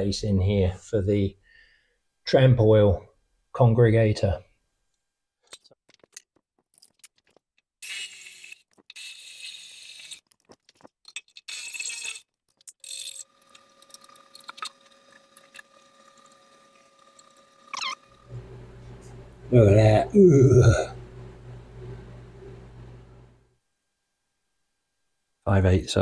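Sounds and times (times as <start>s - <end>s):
faint steady hum: 0.0s - 5.3s, 13.0s - 26.0s.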